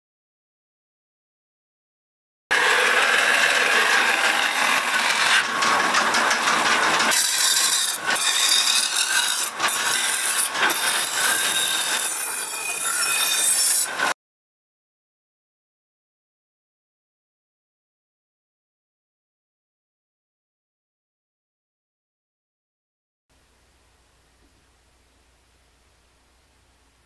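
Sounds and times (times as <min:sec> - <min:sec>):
knife grinding on stone wheel: 0:02.5 - 0:14.1.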